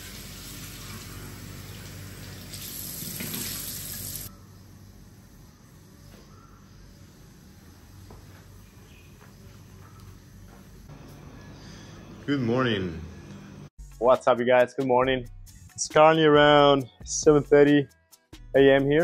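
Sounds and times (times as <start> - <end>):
tap water running into sink: 1.7 - 4.3.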